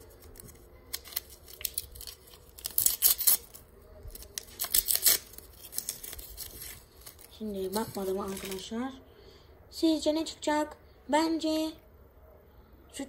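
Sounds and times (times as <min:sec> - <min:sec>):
foil wrapper tearing and crackling: 0:00.0 - 0:08.7.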